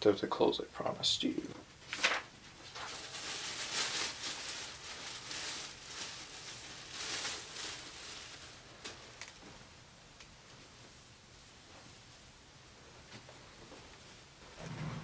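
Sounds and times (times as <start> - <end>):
plastic bag crinkling: 1.9 - 9.6.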